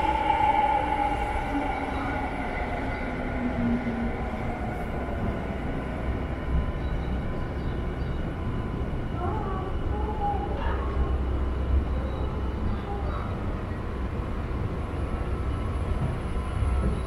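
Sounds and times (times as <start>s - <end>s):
humming tones: 0.0s - 7.3s
machinery rumble and hum: 0.0s - 17.0s.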